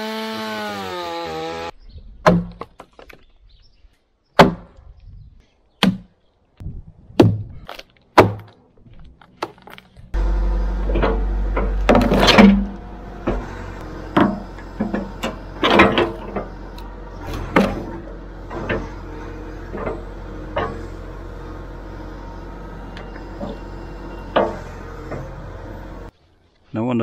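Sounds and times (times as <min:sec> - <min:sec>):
excavator engine running: 0:10.1 - 0:26.1.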